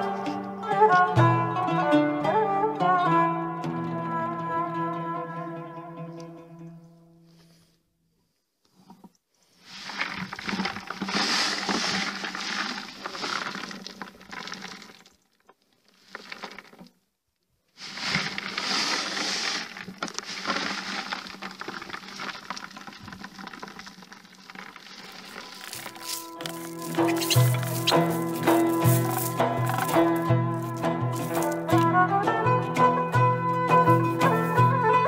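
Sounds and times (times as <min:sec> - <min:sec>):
seed balls tumbling in container: 0:09.6 - 0:15.1, 0:15.9 - 0:16.9, 0:17.8 - 0:31.9, 0:33.9 - 0:34.6.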